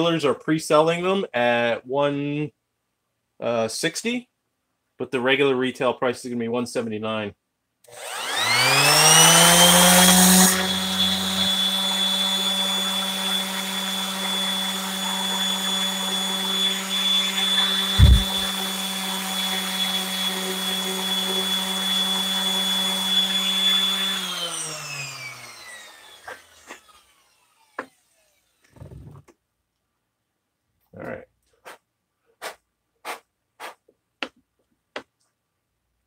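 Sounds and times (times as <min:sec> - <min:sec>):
electric palm sander running: 0:07.9 - 0:28.1
low thump: 0:18.0 - 0:18.5.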